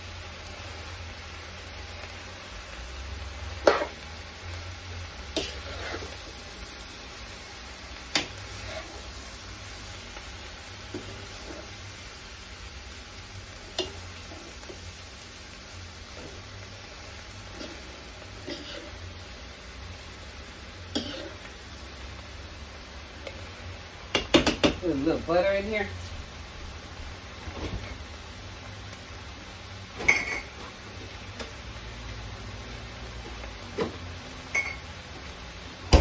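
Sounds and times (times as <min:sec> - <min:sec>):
cabbage sizzling in a pot: 0:00.0 - 0:36.0
utensil scraping: 0:05.4 - 0:06.2.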